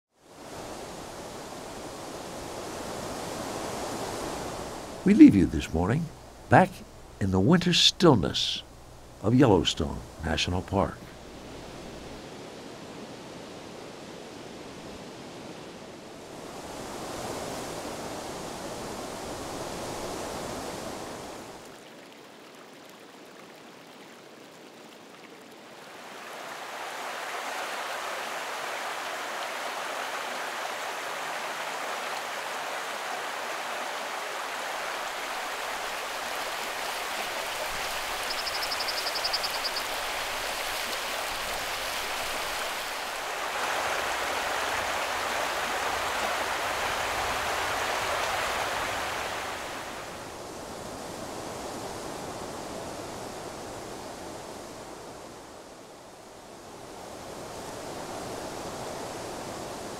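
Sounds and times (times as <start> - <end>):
river water rushing: 0.2 - 55.2.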